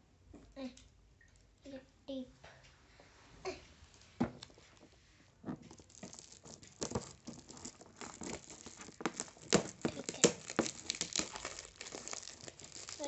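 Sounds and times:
fingers scratching at tape: 5.5 - 13.0
foil gift wrap crinkling: 5.5 - 13.0.

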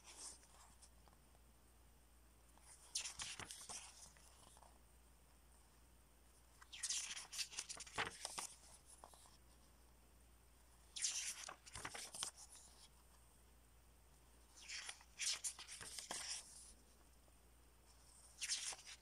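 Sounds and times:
paper pages rustling: 2.6 - 4.8, 6.6 - 9.5, 10.9 - 13.2, 14.5 - 16.8, 17.9 - 19.0.

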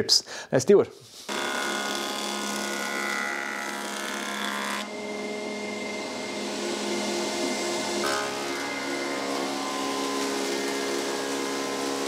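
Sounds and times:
planer cutting wooden board: 1.3 - 12.0.

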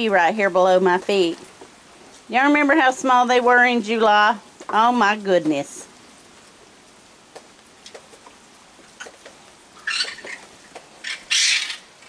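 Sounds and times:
raccoons eating clicks: 7.3 - 12.0
raccoon hissing: 9.8 - 10.4, 11.0 - 11.9.

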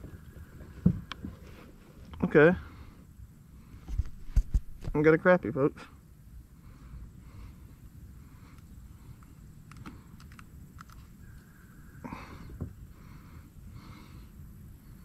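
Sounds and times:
person breathing close: 6.5 - 10.2, 12.0 - 15.0.

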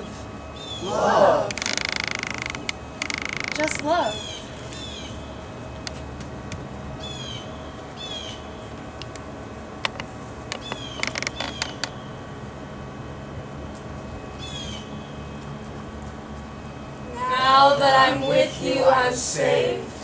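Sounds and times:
steady low hum: 0.0 - 20.0
bird calling: 0.5 - 5.5, 7.0 - 8.7, 10.5 - 12.2, 14.4 - 15.3.

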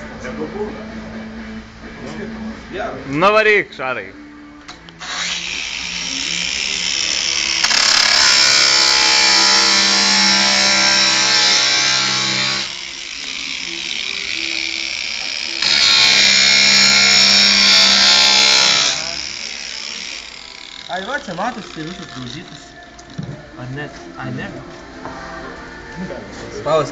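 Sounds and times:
grinder motor spinning free: 5.0 - 22.8
angle grinder grinding glass: 5.0 - 23.3.

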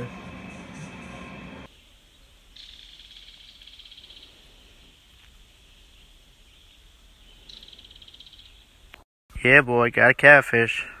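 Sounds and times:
background music: 0.0 - 1.7
faint outdoor ambience: 0.0 - 11.0.

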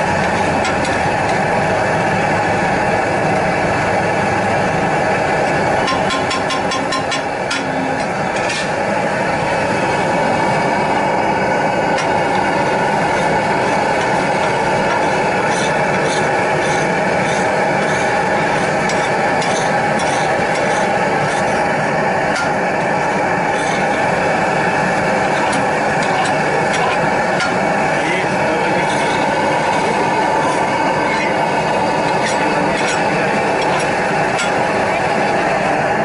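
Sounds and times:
street noise: 0.0 - 36.0
metal spatula scraping griddle: 0.1 - 1.4, 5.5 - 8.8, 12.0 - 21.7, 22.3 - 24.2, 24.9 - 35.4.

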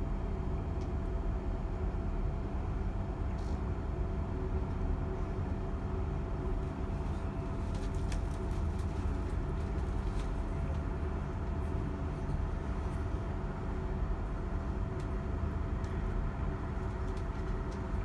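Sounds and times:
train rumbling inside carriage: 0.0 - 18.0.

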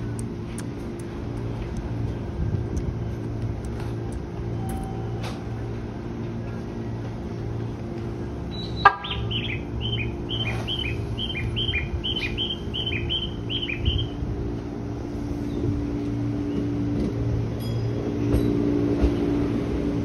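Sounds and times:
standing train hum: 0.0 - 20.0
bird chirping: 8.5 - 14.2.

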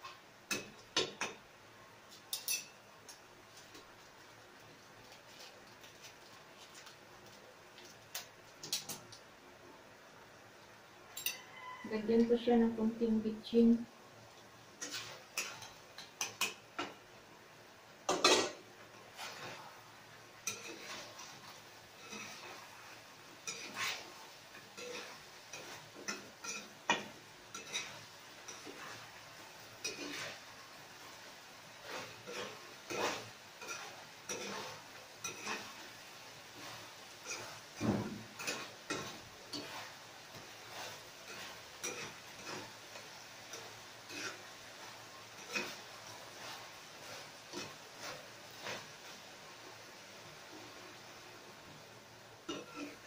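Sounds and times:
metal utensil scraping a frying pan: 14.8 - 17.0, 18.1 - 19.8, 20.4 - 49.4, 52.5 - 53.0.

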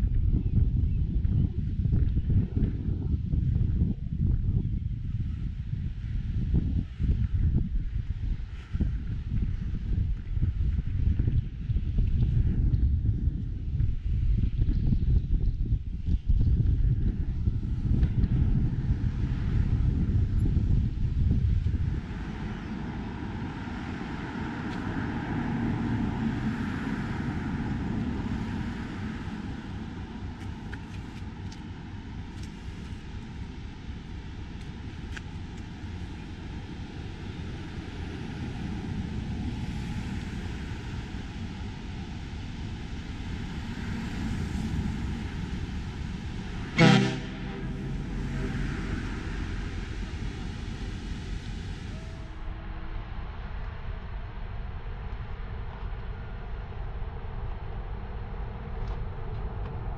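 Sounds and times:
steady rushing noise: 0.0 - 59.9
ship's horn blast: 46.4 - 52.4.

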